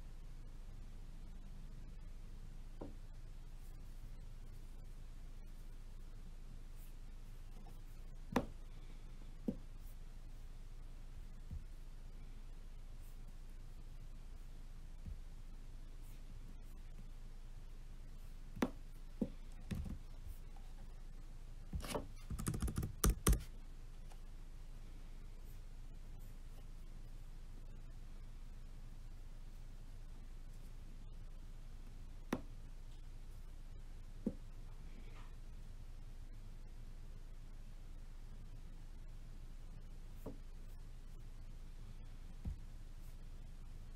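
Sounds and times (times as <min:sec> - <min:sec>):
faint low room hum: 0:00.0 - 0:43.9
typing on laptop keyboard: 0:22.2 - 0:23.5.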